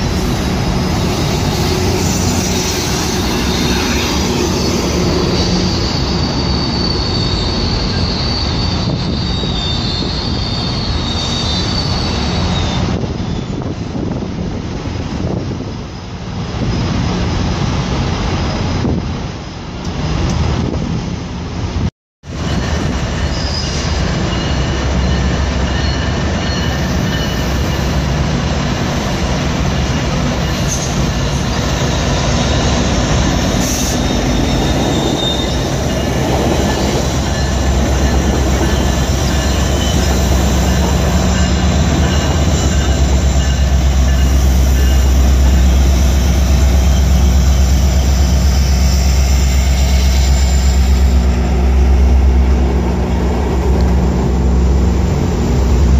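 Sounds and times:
train rumbling past: 0.0s - 55.9s
wheels squealing: 0.9s - 13.7s, 30.4s - 51.6s.

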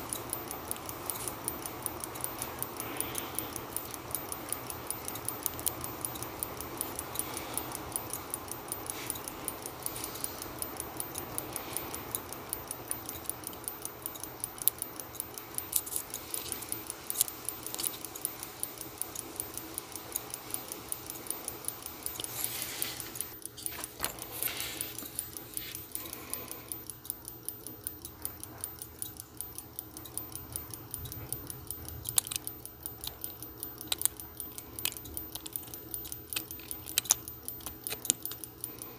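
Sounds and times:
clothes dryer humming: 0.0s - 26.8s
fast even ticking: 0.0s - 38.9s
tweezers clicking on metal: 0.0s - 38.9s.

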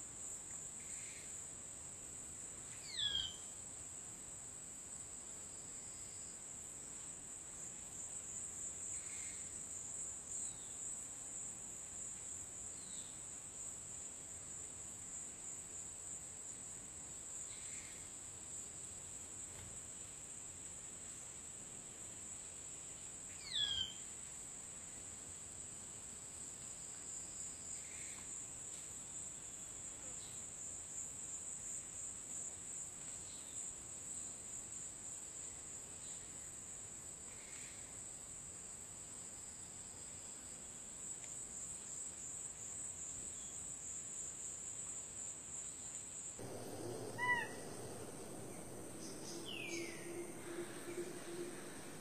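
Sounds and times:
bird chirping sharply: 46.4s - 52.0s
bird falling call: 46.4s - 52.0s
faint bird calls: 46.4s - 52.0s
high-pitched insect drone: 46.4s - 52.0s.

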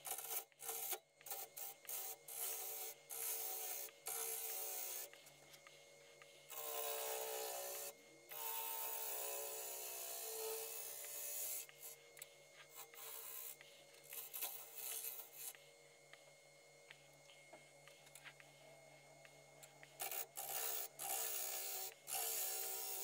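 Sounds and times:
gouge cutting wood on lathe: 0.0s - 5.2s, 6.5s - 12.0s, 12.7s - 15.6s, 20.0s - 23.0s.

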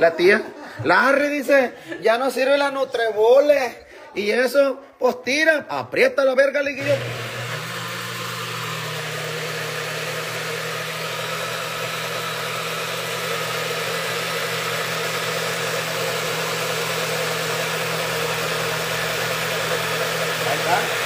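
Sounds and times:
blender motor running: 6.8s - 21.0s.

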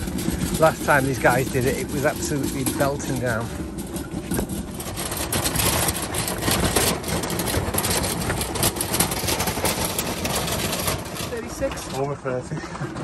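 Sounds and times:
load rattling: 0.0s - 13.0s
trolley rolling over concrete: 0.0s - 13.0s.

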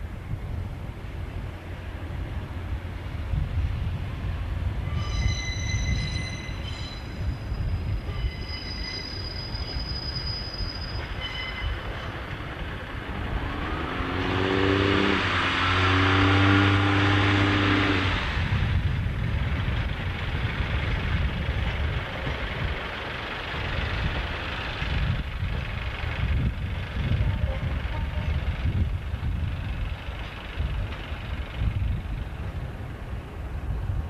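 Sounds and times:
railway wagons rolling: 0.0s - 13.9s, 18.1s - 34.0s
diesel train passing: 0.0s - 34.0s
high-pitched wheel squeal: 4.8s - 12.2s.

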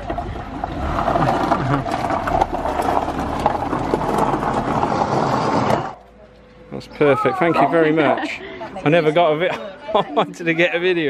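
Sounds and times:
tyres crunching on gravel: 0.0s - 6.1s
low engine hum: 0.0s - 6.9s.

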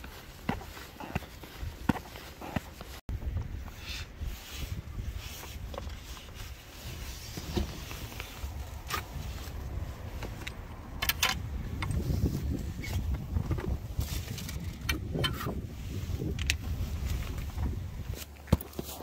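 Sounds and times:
footsteps on pavement: 0.0s - 3.7s
wind rumble on microphone: 3.1s - 18.2s.

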